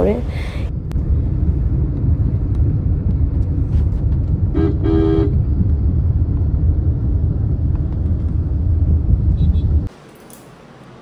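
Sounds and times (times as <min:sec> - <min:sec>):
road and engine rumble: 0:00.0 - 0:11.0
vehicle horn honking: 0:04.5 - 0:05.4, 0:09.4 - 0:09.8.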